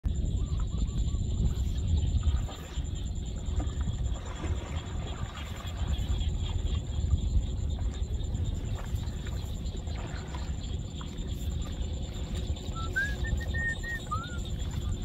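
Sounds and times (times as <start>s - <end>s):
wind buffeting microphone: 0.0s - 15.0s
bird whistled chirps: 12.6s - 15.0s.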